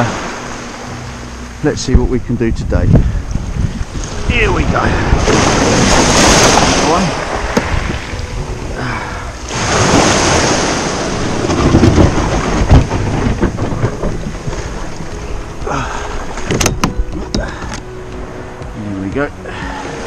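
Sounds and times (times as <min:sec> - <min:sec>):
wind buffeting microphone: 0:00.0 - 0:20.0
small waves on shingle: 0:04.0 - 0:08.6, 0:09.4 - 0:16.5
knocks: 0:16.5 - 0:17.8.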